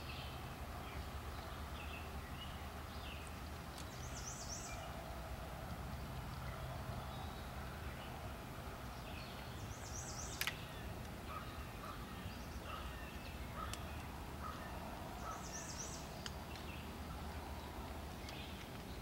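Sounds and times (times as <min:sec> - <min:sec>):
bird chirps: 0:00.0 - 0:05.0, 0:09.0 - 0:17.0
songbirds trilling: 0:00.0 - 0:19.0
sharp clicks: 0:10.3 - 0:11.2.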